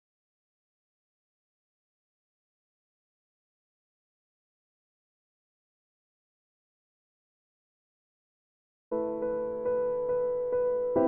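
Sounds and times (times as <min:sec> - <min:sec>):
piano music: 0:08.9 - 0:11.0.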